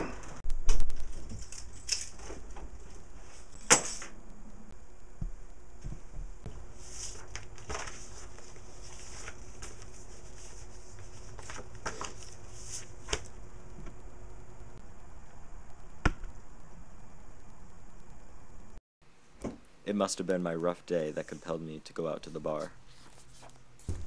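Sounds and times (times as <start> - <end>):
steady low hum: 0.0 - 24.0
paper rustling and crinkling: 6.8 - 13.3.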